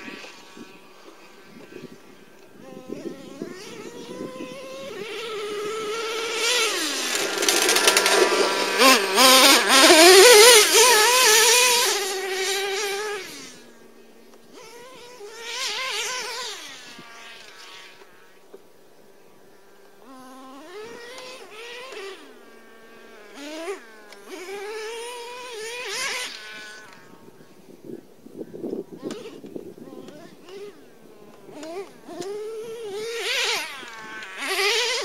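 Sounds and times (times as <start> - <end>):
rc truck engine revving: 0.0 - 18.4, 19.8 - 27.2, 29.0 - 35.0.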